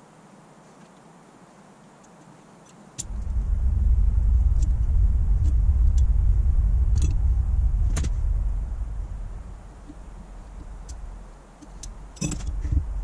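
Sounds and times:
loud steady low rumble: 0:03.0 - 0:13.0.

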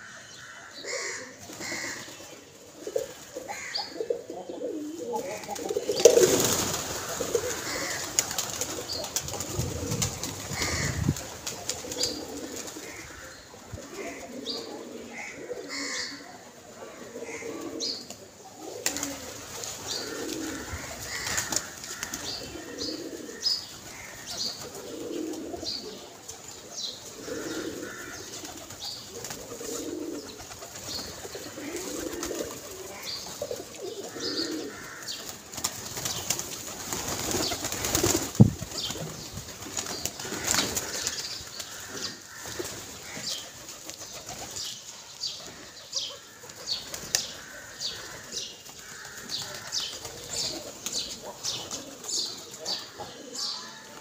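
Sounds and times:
pigeons cooing: 0:00.0 - 0:54.0
wings flapping: 0:05.2 - 0:13.0, 0:18.8 - 0:22.4, 0:28.2 - 0:33.7, 0:34.9 - 0:44.7, 0:46.4 - 0:52.1.

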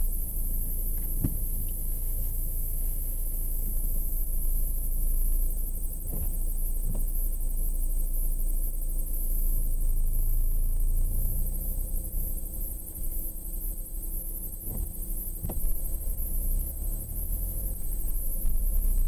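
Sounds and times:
road and engine rumble: 0:00.0 - 0:19.0
soft knocks: 0:01.0 - 0:01.6, 0:14.7 - 0:16.0.

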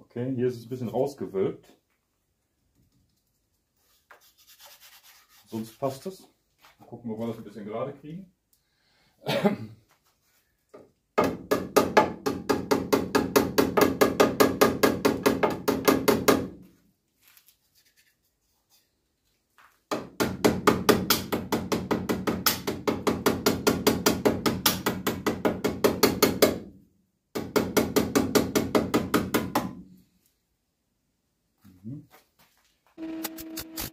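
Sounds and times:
hammer tapping on sheet steel: 0:11.2 - 0:16.6, 0:19.9 - 0:26.6, 0:27.4 - 0:29.8.

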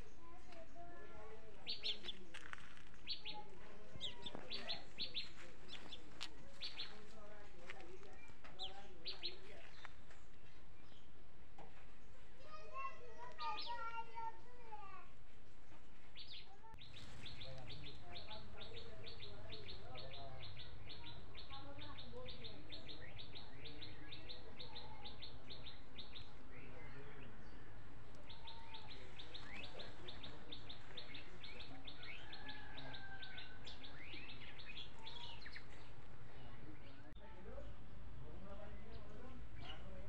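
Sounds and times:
bird chirping: 0:01.6 - 0:07.1, 0:15.7 - 0:38.0.

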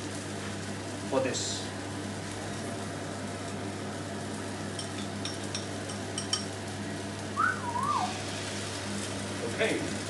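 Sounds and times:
tomatoes sizzling in a pan: 0:00.0 - 0:10.0
spoon clinking against bowl: 0:04.8 - 0:06.5.

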